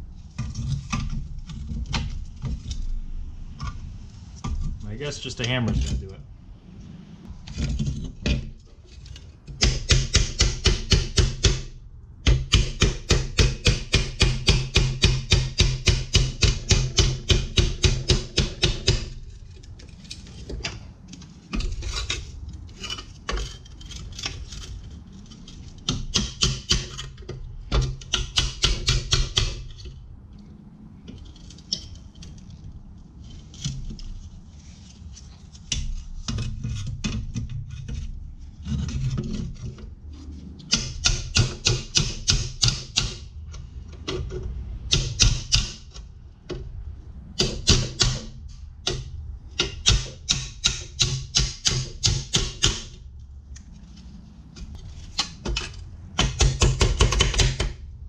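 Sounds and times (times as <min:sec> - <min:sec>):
hammer striking steel: 0:09.6 - 0:19.2, 0:40.7 - 0:43.3, 0:44.9 - 0:46.0, 0:47.4 - 0:53.0.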